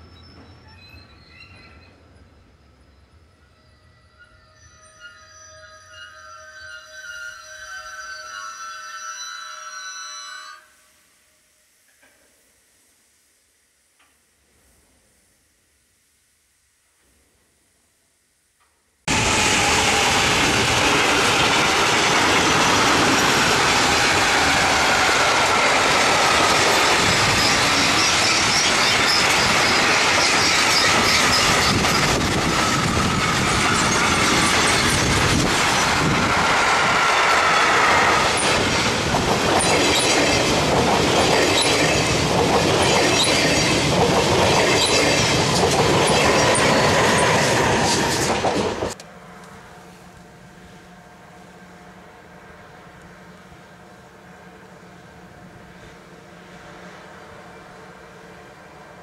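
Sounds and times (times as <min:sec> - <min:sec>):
squealing train wheels: 0:00.0 - 0:12.2, 0:19.1 - 0:59.0
freight train rumbling past: 0:19.1 - 0:59.0
wheels clicking over rail joints: 0:38.2 - 0:49.1.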